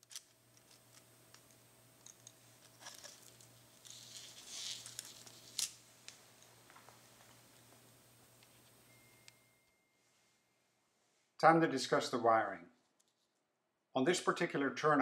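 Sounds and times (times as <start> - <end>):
plastic parts clicking and rustling: 0.0 - 5.8.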